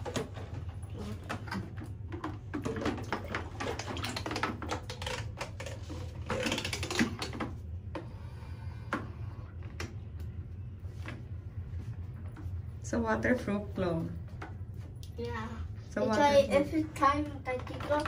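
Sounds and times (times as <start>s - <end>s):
water splashing in plastic basin: 1.0s - 7.6s.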